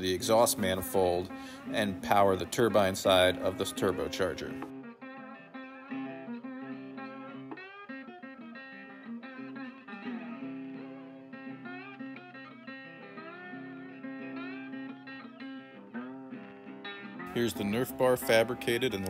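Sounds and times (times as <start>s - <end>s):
guitar music with bent notes: 0.0s - 19.0s.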